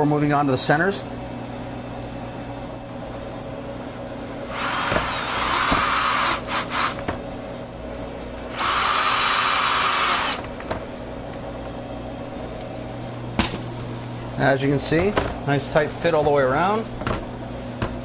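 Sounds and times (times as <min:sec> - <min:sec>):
power drill motor whine: 0:04.5 - 0:07.1, 0:08.5 - 0:10.5
drill trigger blips: 0:08.5 - 0:10.4.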